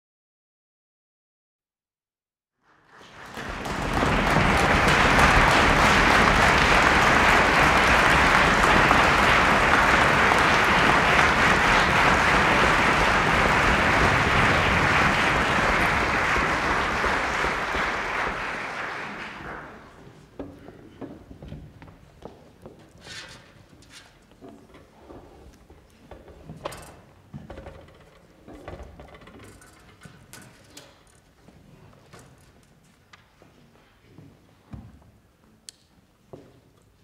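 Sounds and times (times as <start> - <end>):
audience applauding: 2.7 - 20.2.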